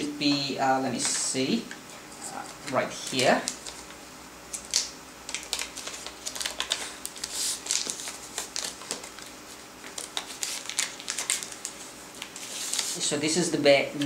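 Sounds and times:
plastic bag crinkling: 2.4s - 13.1s.

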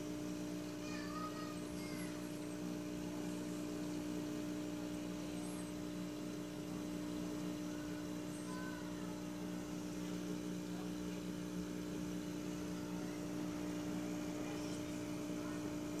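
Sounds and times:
aquarium equipment humming: 0.0s - 16.0s.

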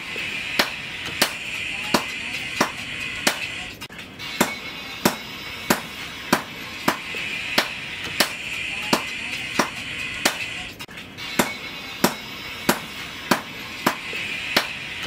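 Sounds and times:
background music with sharp beat: 0.0s - 15.0s.

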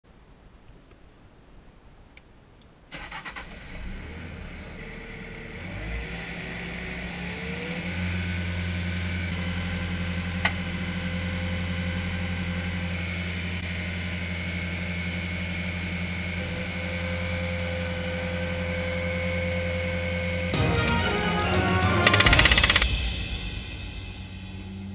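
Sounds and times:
diesel engine starting and revving: 2.9s - 20.7s.

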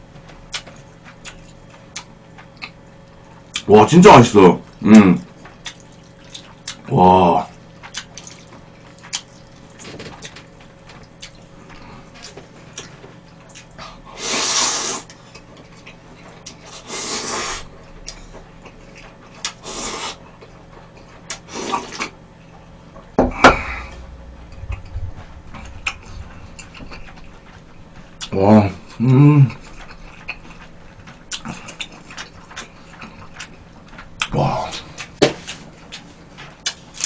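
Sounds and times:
chewing: 0.5s - 3.7s, 4.7s - 22.7s, 23.7s - 37.0s
noodles slurped: 13.6s - 15.2s.

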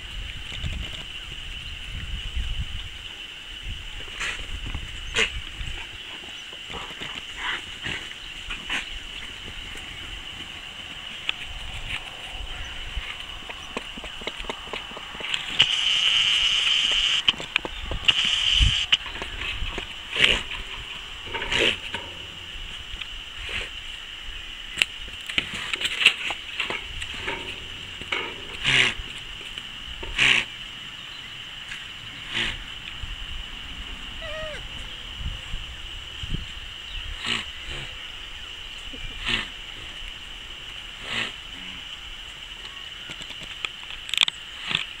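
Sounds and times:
llama calling: 9.6s - 22.5s, 34.2s - 34.8s
llama alarm calls: 15.0s - 17.3s, 18.0s - 19.3s.

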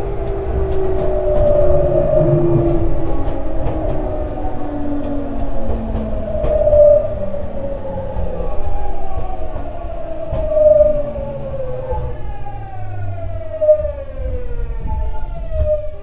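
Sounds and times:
train motors whining: 0.0s - 15.9s
wheels rumbling on rails: 0.0s - 16.0s.

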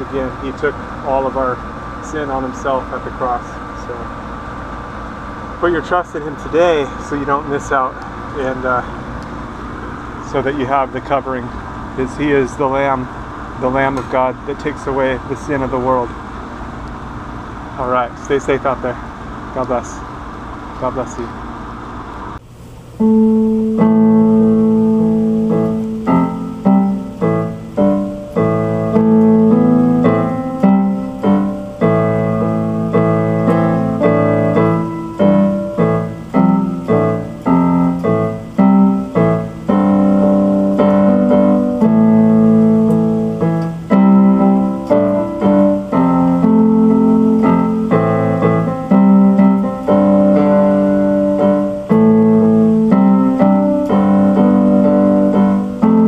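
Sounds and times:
solo piano piece on keyboard: 23.0s - 56.0s.

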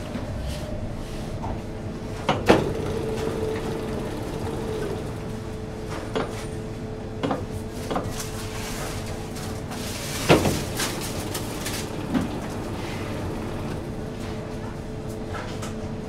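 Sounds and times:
dough sheeter motor hum: 0.0s - 16.0s
machine clunks: 2.1s - 6.5s, 10.1s - 14.7s.

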